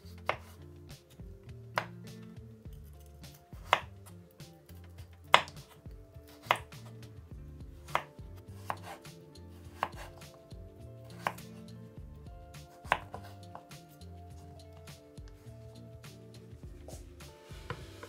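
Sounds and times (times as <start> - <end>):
knife slicing potatoes: 0.0 - 1.2, 2.8 - 7.1, 7.8 - 10.4, 11.0 - 11.7, 12.6 - 14.1.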